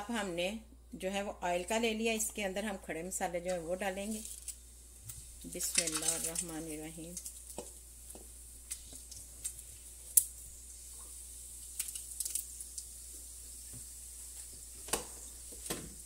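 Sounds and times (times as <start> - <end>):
oil crackles and pops: 3.5 - 16.0
spices sizzling in hot oil: 3.5 - 16.0.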